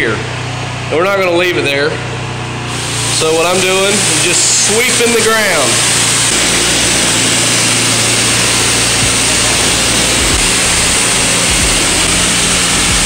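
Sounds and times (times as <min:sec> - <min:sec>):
pressure washer spraying concrete: 0:02.6 - 0:13.0
low hum: 0:02.7 - 0:13.0.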